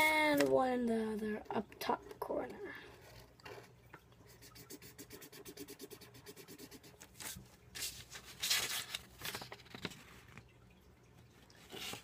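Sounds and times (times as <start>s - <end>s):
marker scribbling on paper: 4.5s - 7.0s
paper rustling: 7.0s - 10.5s.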